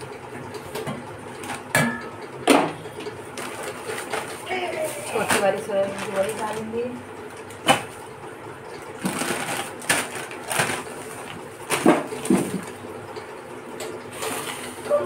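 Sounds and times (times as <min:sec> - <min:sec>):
plastic bags crinkling: 0:03.3 - 0:07.6, 0:09.0 - 0:12.8.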